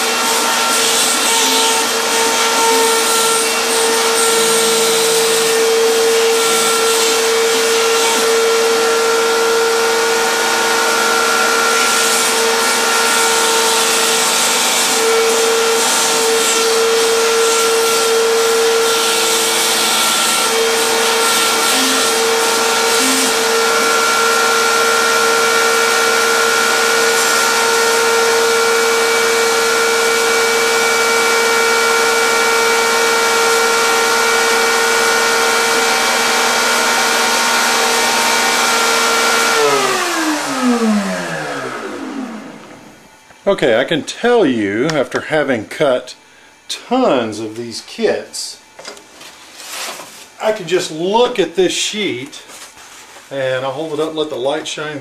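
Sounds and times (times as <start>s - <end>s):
cnc spindle whining: 0.0s - 43.4s
low motor tones: 20.4s - 27.0s.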